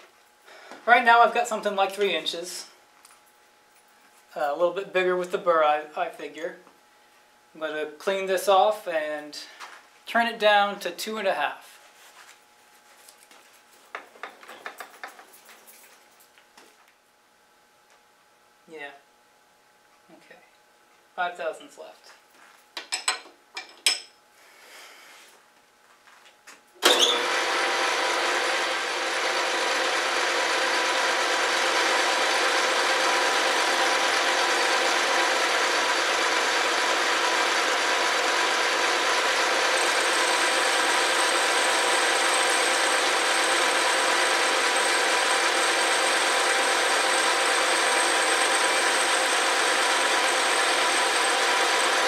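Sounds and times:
metal lathe motor whining: 0:26.8 - 0:52.0.

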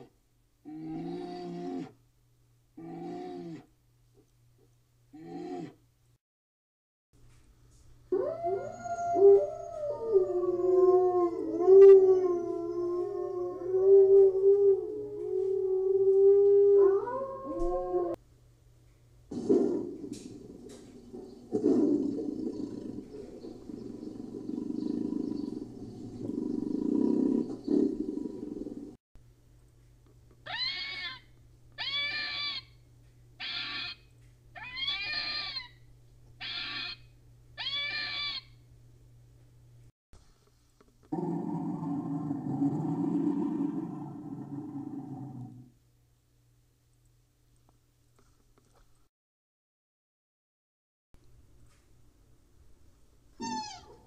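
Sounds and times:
wolves howling: 0:08.1 - 0:18.2
red fox calling: 0:30.4 - 0:32.7, 0:33.4 - 0:34.0, 0:34.6 - 0:35.8, 0:36.4 - 0:37.0, 0:37.6 - 0:38.6, 0:53.4 - 0:54.0.

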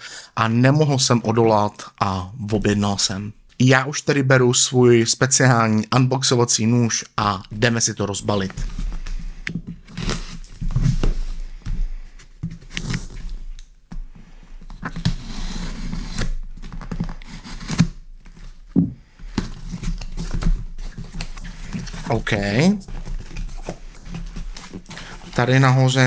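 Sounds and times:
knife cutting packing tape: 0:14.8 - 0:18.5
box knocking against desk: 0:18.8 - 0:19.0.

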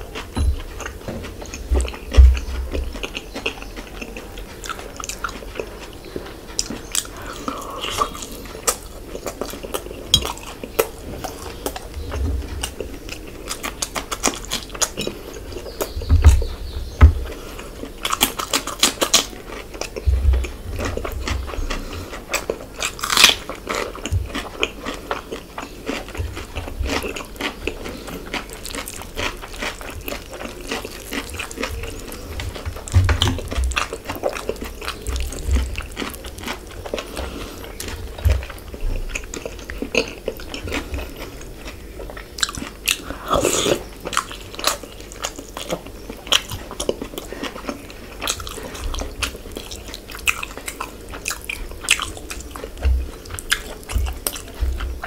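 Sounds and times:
chewing and mouth smacks: 0:00.0 - 0:55.0
low thumps: 0:00.3 - 0:03.0, 0:16.0 - 0:17.4.

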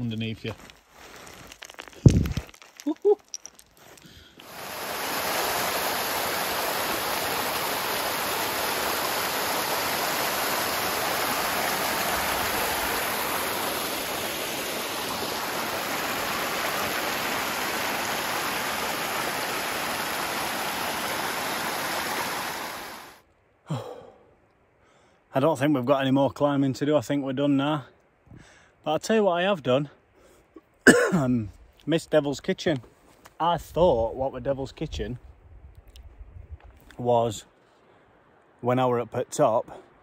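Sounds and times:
water rushing over rocks: 0:04.4 - 0:23.2.

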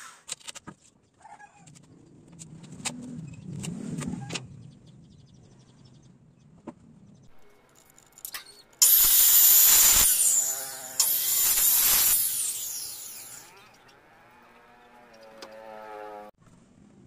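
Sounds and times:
circular saw cutting wood: 0:08.2 - 0:14.0
saw motor whining down: 0:08.3 - 0:16.3.

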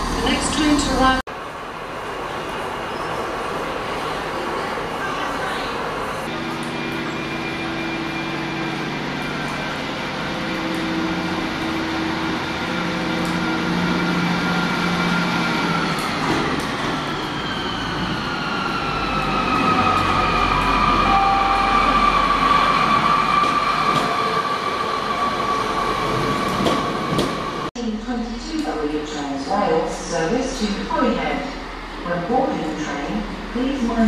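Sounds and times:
high-pitched train squeal: 0:16.8 - 0:24.4.

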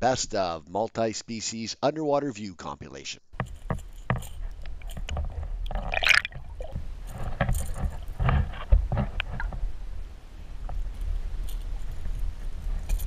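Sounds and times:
fish thrashing with splashy knocks: 0:05.7 - 0:06.7
underwater rush of water: 0:05.7 - 0:06.8.

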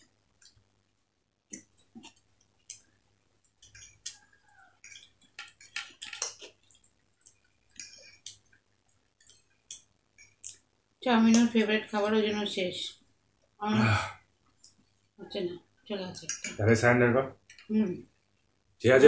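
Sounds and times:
people chewing noodles: 0:00.0 - 0:10.7.

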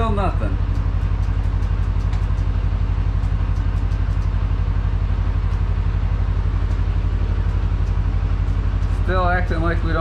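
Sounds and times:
utility vehicle engine idling: 0:00.0 - 0:10.0.

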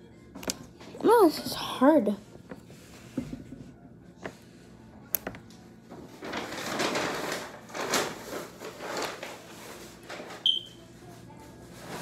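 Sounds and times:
rustling handling noise: 0:05.5 - 0:12.0.

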